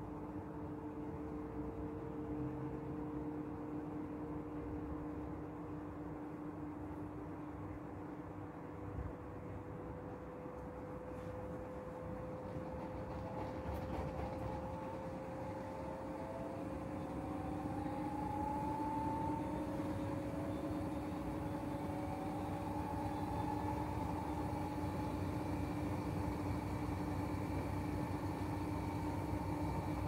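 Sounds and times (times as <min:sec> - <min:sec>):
washing machine motor whine: 0:08.6 - 0:30.0.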